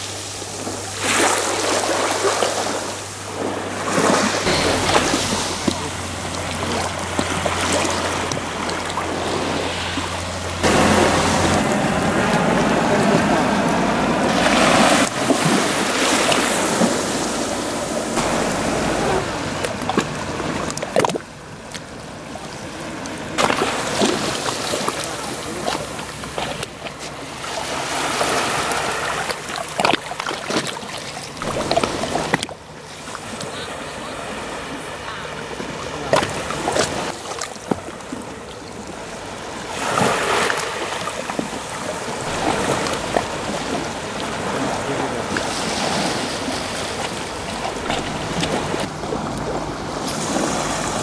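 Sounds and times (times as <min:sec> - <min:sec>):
loud steady rushing noise: 0:00.0 - 0:21.6, 0:31.4 - 0:32.5, 0:36.0 - 0:37.2, 0:42.0 - 0:51.0
small waves lapping on sand: 0:00.0 - 0:51.0.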